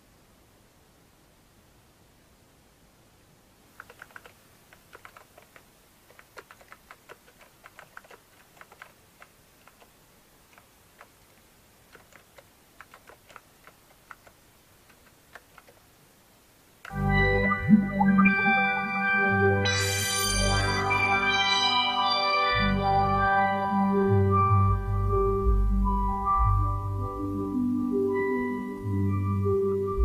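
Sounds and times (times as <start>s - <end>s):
computer keyboard typing: 3.8s - 11.2s, 11.9s - 15.8s.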